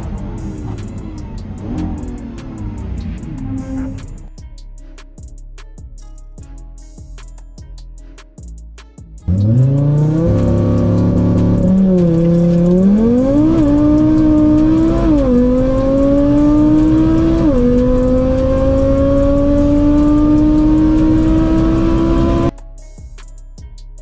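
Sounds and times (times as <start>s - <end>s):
car engine accelerating: 0.0s - 4.3s, 9.3s - 22.5s
gear upshifts: 9.3s - 22.5s.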